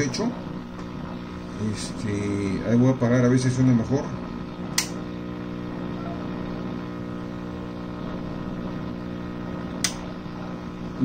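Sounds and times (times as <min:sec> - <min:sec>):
radio speaker mains hum: 0:00.0 - 0:11.0
sharp click: 0:04.7 - 0:05.0, 0:09.8 - 0:10.0.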